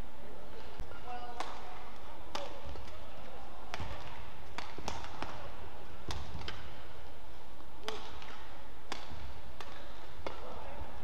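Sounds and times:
low arena hum: 0:00.0 - 0:11.0
racket hitting shuttlecock: 0:01.3 - 0:03.1, 0:03.7 - 0:06.9, 0:07.8 - 0:10.6.

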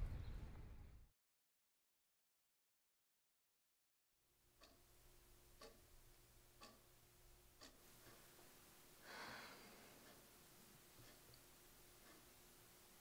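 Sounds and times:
low room hum: 0:04.4 - 0:13.0
wall clock ticking: 0:04.5 - 0:13.0
soft breath: 0:09.0 - 0:10.2.

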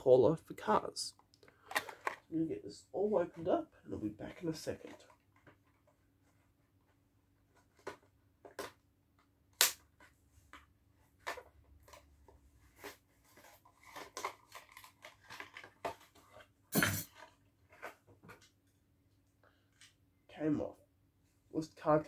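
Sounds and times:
plastic and cardboard crinkling: 0:07.4 - 0:08.8, 0:11.0 - 0:18.5
sharp plastic snaps: 0:09.5 - 0:12.0.

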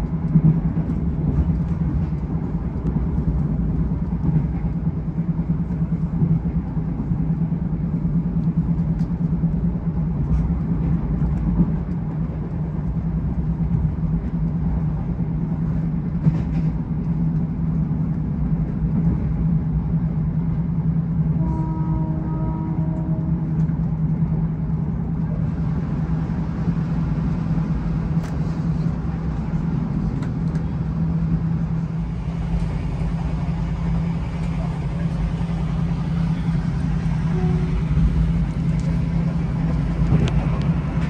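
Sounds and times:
vehicle interior drone: 0:00.0 - 0:41.0.

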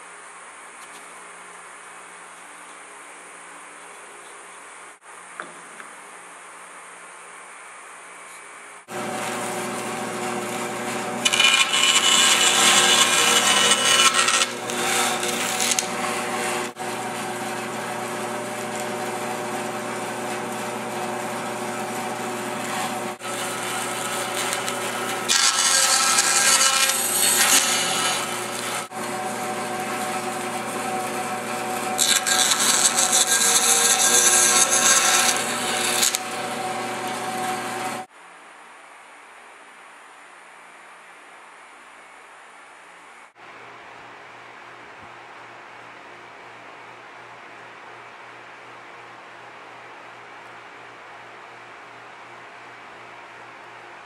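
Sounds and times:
saw blade cutting wood: 0:08.9 - 0:19.2, 0:20.2 - 0:38.1
band saw humming: 0:08.9 - 0:38.1.

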